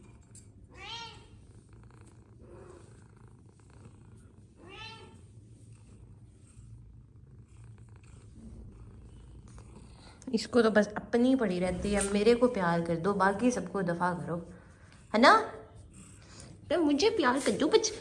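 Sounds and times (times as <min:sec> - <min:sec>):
cat purring: 0:00.0 - 0:18.0
cat meowing: 0:00.7 - 0:01.4, 0:04.6 - 0:05.2.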